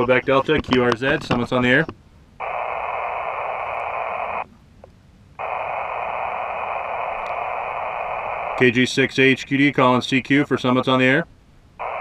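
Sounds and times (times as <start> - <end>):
radio receiver hiss: 2.4 - 4.5, 5.4 - 10.7, 11.8 - 12.0.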